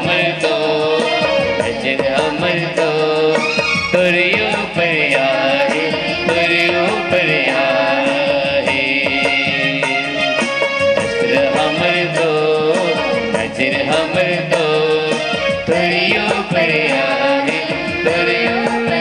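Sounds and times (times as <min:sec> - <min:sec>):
women's choir singing a hymn: 0:00.0 - 0:03.5, 0:04.2 - 0:09.8, 0:11.2 - 0:19.0.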